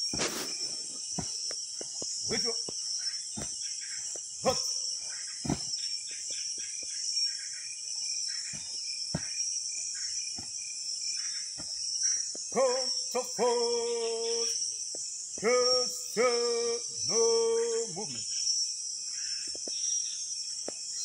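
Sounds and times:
crickets and insects chirping: 0:00.0 - 0:21.0
voice holding sustained notes: 0:12.5 - 0:14.6.

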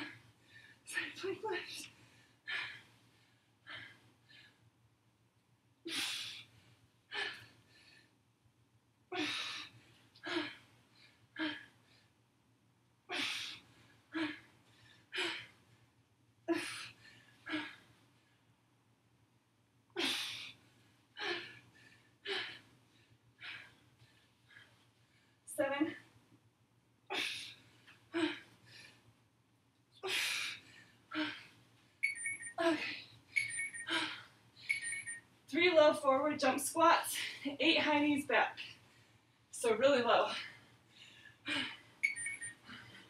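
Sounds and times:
woman breathing hard: 0:05.9 - 0:08.2, 0:09.1 - 0:12.2, 0:20.0 - 0:25.4, 0:30.0 - 0:35.2, 0:40.3 - 0:43.0.

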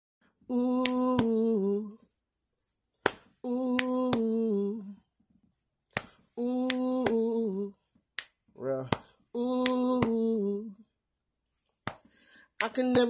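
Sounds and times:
person humming: 0:00.5 - 0:02.0, 0:03.4 - 0:05.0, 0:06.4 - 0:07.7, 0:09.4 - 0:10.8
finger snaps: 0:00.7 - 0:01.4, 0:03.0 - 0:04.3, 0:05.9 - 0:07.2, 0:08.0 - 0:10.2, 0:11.7 - 0:13.0.

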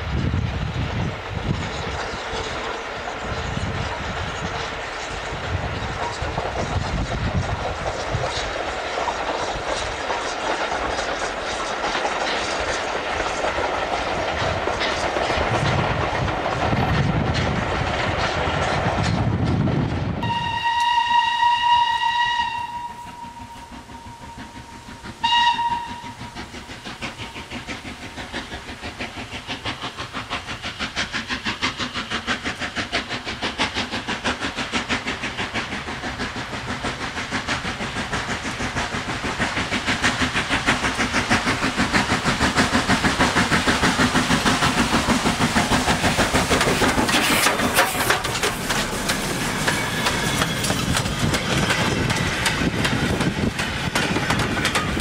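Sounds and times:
steam locomotive exhaust beats: 0:00.0 - 0:55.0
steam locomotive whistle: 0:20.2 - 0:26.5.

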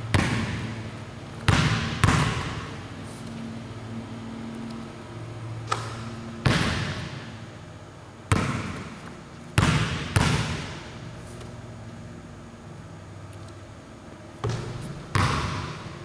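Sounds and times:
basketball bouncing on hardwood floor: 0:00.1 - 0:00.8, 0:01.4 - 0:02.7, 0:05.7 - 0:07.2, 0:08.3 - 0:09.0, 0:09.6 - 0:10.8, 0:14.4 - 0:15.9.

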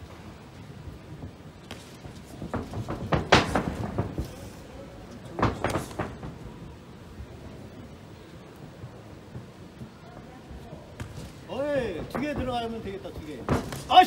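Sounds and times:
feet on canvas: 0:01.2 - 0:04.6, 0:10.6 - 0:14.0.

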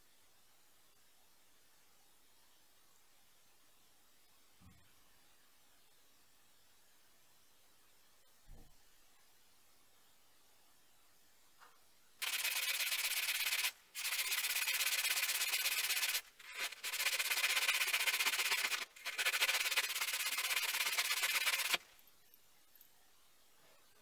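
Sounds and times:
sanding sponge rasping on metal: 0:12.2 - 0:21.8.

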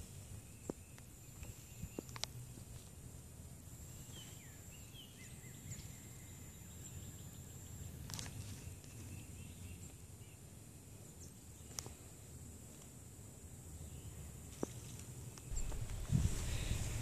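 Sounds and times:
bird chirps: 0:15.4 - 0:17.0
low rumble: 0:15.5 - 0:17.0.

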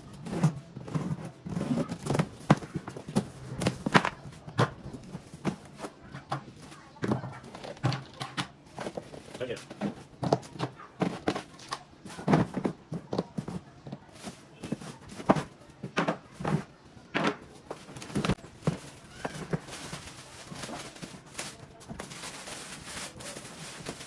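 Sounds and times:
plastic wrapping rustling: 0:17.6 - 0:24.0.

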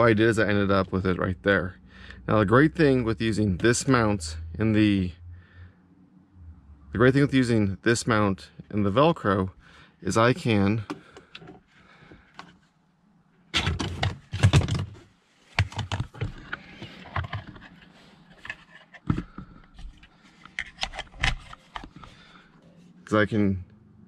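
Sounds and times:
plastic clicks and knocks: 0:15.6 - 0:17.7.

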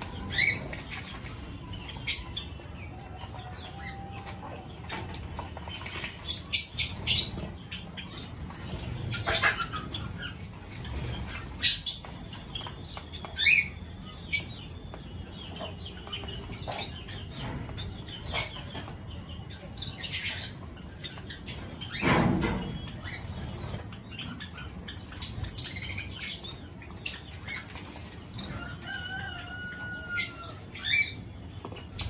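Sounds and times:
small birds chirping: 0:00.0 - 0:32.0.

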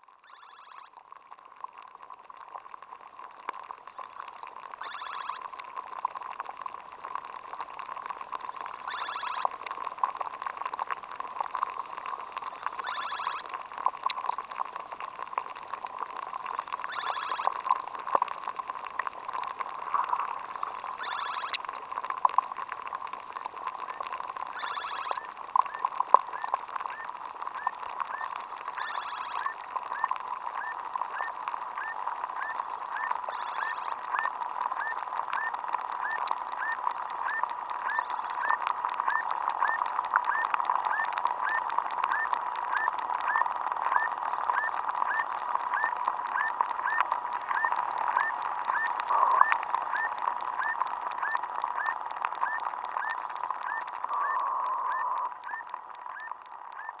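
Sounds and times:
short insect chirps: 0:00.2 - 0:01.0, 0:04.8 - 0:05.4, 0:08.9 - 0:09.5, 0:12.8 - 0:13.4, 0:16.9 - 0:17.5, 0:21.0 - 0:21.6, 0:24.6 - 0:27.0, 0:27.6 - 0:36.2
aquatic insects clicking: 0:00.2 - 0:57.0.

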